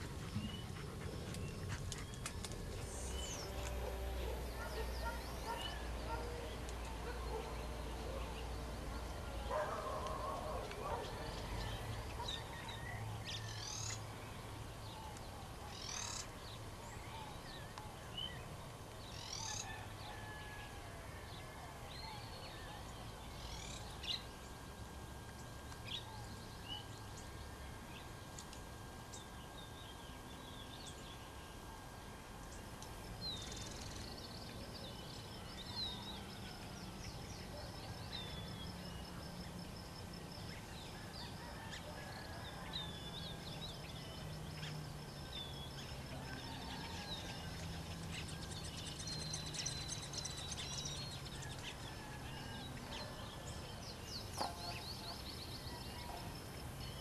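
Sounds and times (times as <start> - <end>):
birds chirping: 0.0 - 20.6.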